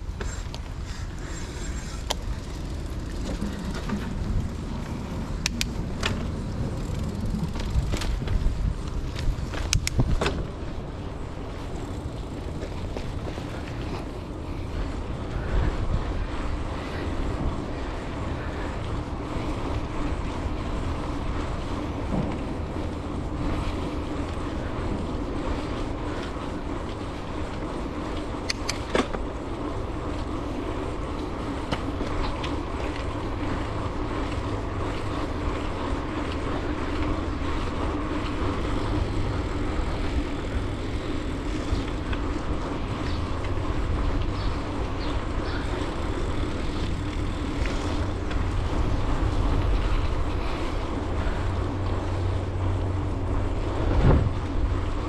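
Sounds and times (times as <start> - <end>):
bicycle tyres rolling on pavement: 0.0 - 55.0
wind rushing over microphone: 0.0 - 55.0
sharp clicks: 5.4 - 6.2, 9.6 - 10.3, 28.4 - 29.1.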